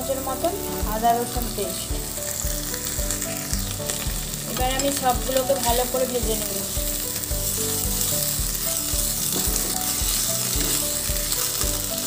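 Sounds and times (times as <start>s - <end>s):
background music with low beat: 0.0s - 12.0s
food sizzling in hot oil: 0.0s - 12.0s
spatula stirring: 6.7s - 12.0s.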